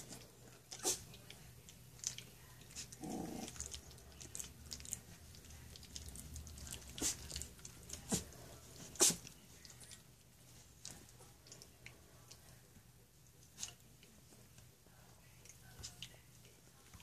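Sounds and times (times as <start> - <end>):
puppies wet mouthing clicks: 0.6 - 8.2.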